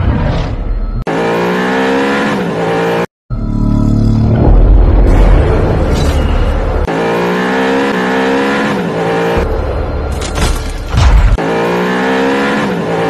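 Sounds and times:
engine at high revs: 1.0 - 4.4, 6.8 - 9.9, 11.2 - 13.0.

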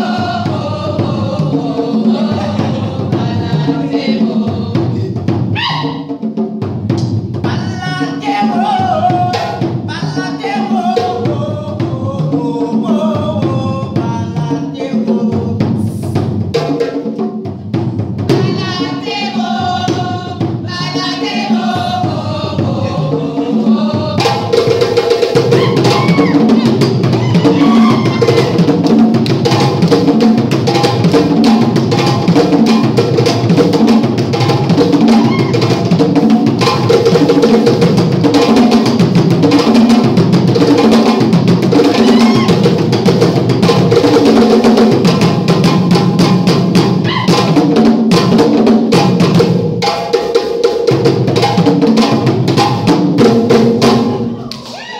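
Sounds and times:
deeper drums: 0.0 - 8.1, 15.3 - 50.0
djembe drumming: 0.0 - 54.9.

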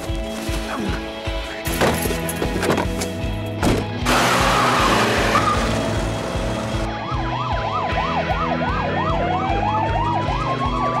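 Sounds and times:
slow wailing siren: 4.3 - 11.0
fast yelp siren: 6.9 - 11.0.

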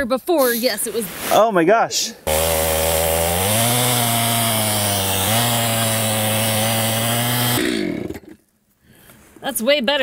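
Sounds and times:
chainsaw cutting log: 2.3 - 8.4.

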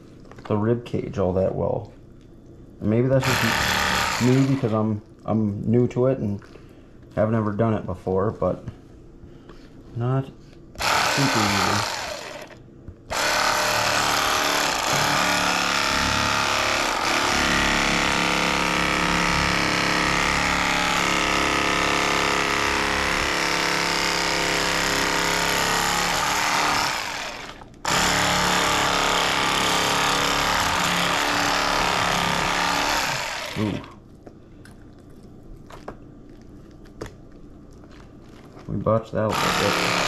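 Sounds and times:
electric fillet knife sawing: 3.1 - 4.8, 10.8 - 34.0, 39.2 - 40.0.

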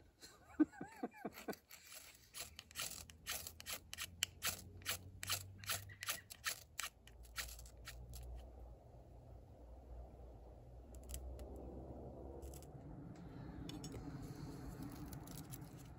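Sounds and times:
striker scraping ferro rod: 1.4 - 8.4.

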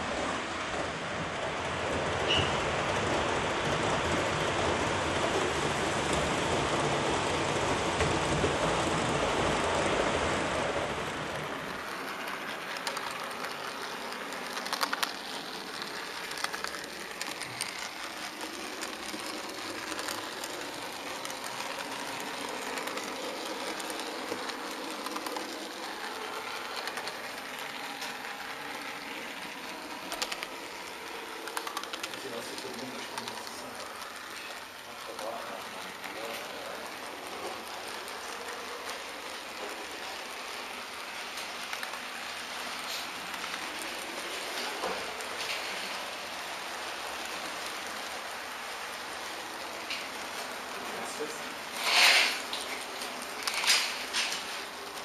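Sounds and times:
model train rattling on track: 0.0 - 55.0
wheels clicking over rails: 0.0 - 55.0.

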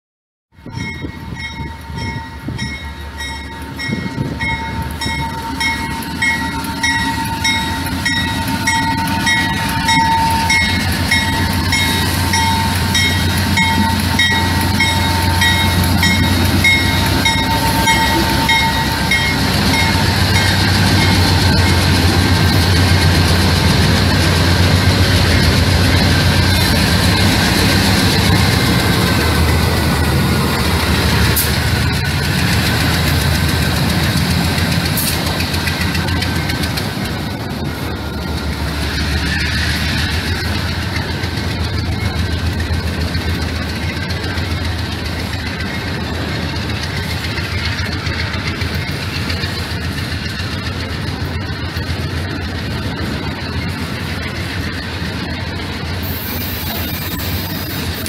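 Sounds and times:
diesel locomotives rumbling: 0.5 - 58.0
pulsing bell ringing: 0.6 - 23.7.

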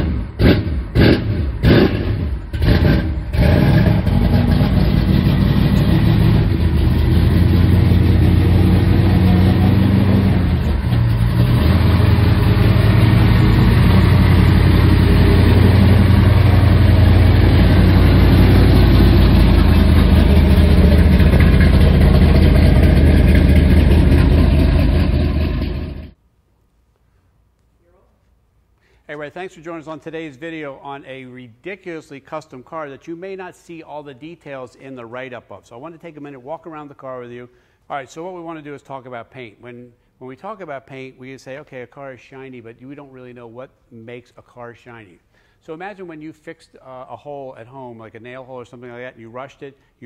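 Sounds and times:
vee eight engine exhaust: 0.0 - 26.2.

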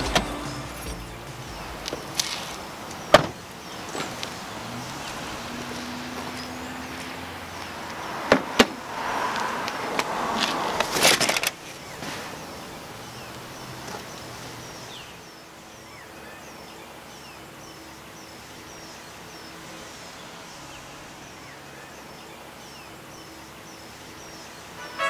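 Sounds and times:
bird chirping: 0.0 - 8.3.

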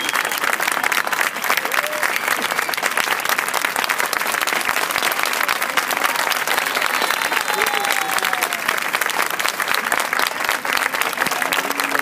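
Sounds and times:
large audience clapping: 0.0 - 12.0
voices calling out: 6.1 - 8.8.

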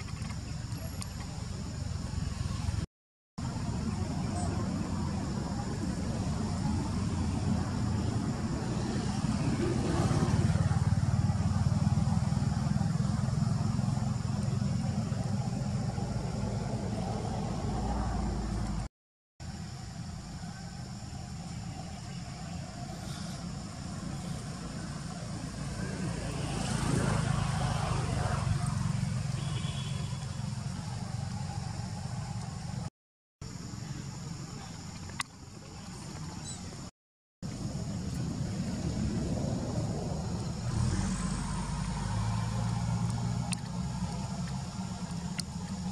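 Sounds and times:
vehicle engine running: 3.4 - 18.9, 37.4 - 45.9.

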